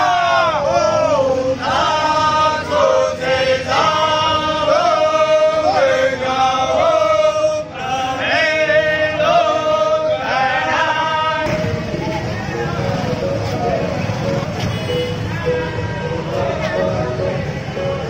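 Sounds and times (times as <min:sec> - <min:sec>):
men chanting together: 0:00.0 - 0:11.6.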